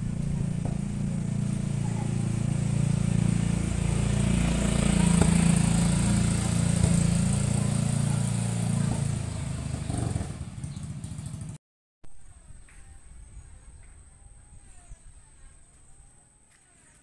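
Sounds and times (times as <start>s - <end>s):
motorcycle engine running: 0.0s - 11.6s.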